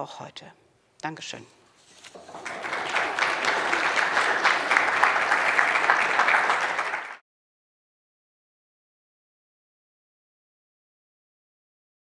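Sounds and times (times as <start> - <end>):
audience applauding: 2.2 - 7.2.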